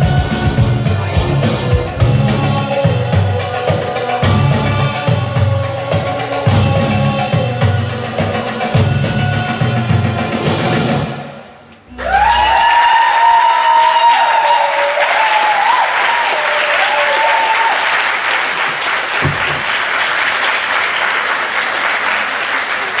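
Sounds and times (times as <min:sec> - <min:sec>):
high voice cheering: 0:11.9 - 0:18.1
audience applauding: 0:11.9 - 0:23.0.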